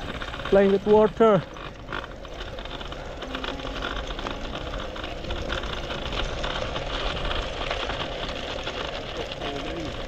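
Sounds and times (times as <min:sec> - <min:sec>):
bike rattles and clicks: 0:00.0 - 0:10.0
bike tyres crunching on gravel: 0:00.0 - 0:10.0
wind rumble on microphone: 0:00.0 - 0:10.0.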